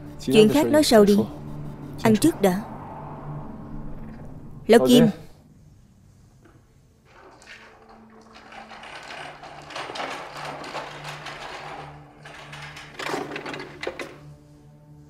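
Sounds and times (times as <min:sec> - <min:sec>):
rapid mechanical clicking and rattling: 0:07.1 - 0:14.2.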